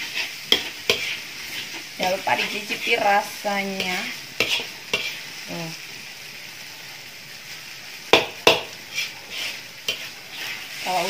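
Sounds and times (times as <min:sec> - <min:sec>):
spatula scraping and knocking wok: 0:00.0 - 0:06.4, 0:07.5 - 0:11.0
noodles sizzling in a wok: 0:00.0 - 0:11.0.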